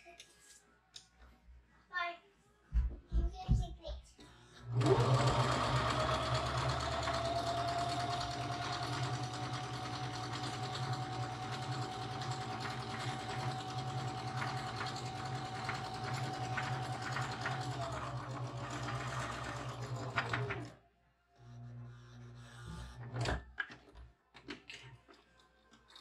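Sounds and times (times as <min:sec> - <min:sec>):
sewing machine running: 0:04.6 - 0:20.8.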